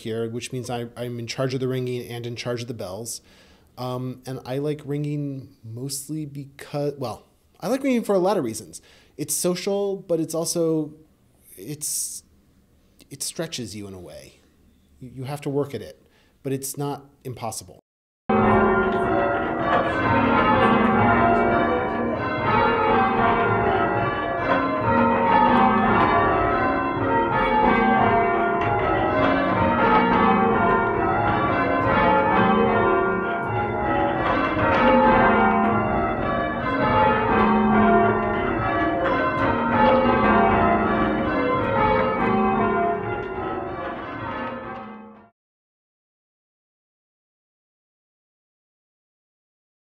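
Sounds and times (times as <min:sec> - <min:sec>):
church bells change ringing: 0:18.3 - 0:45.3.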